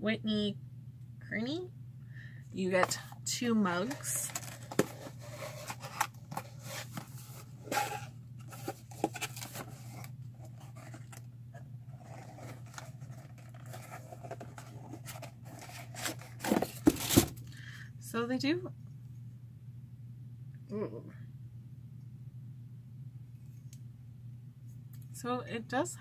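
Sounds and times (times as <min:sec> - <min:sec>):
packaging rustling and tearing: 0:03.8 - 0:11.3, 0:11.9 - 0:17.5.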